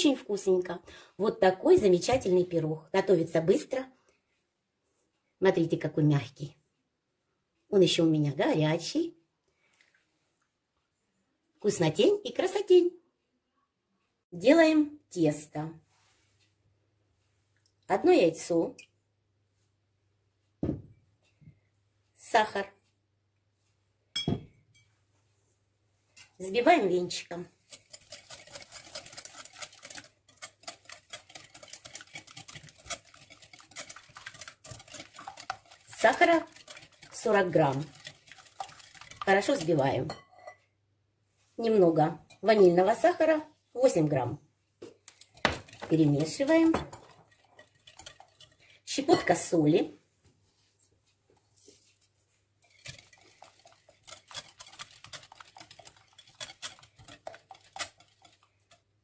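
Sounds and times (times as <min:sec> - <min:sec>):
whisk clicking against glass bowl: 0:27.7 - 0:40.2, 0:45.1 - 0:49.3, 0:52.6 - 0:58.8.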